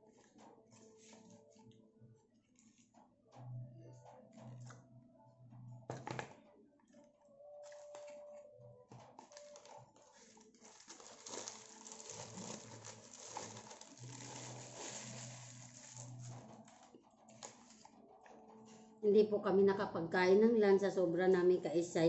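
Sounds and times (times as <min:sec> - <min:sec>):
paper wrapper crinkling: 0:07.6 - 0:18.9.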